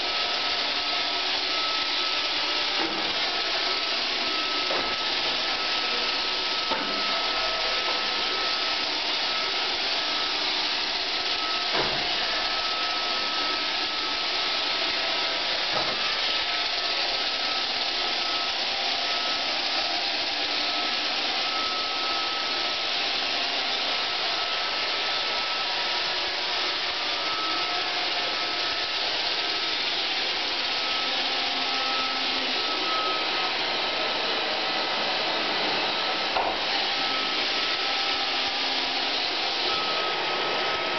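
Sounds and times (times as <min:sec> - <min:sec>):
robot vacuum running: 0:00.0 - 0:40.9.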